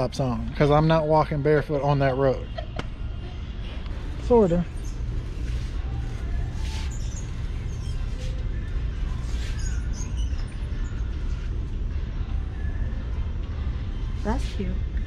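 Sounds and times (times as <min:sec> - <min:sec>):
faint high squeaks: 0:04.7 - 0:11.6.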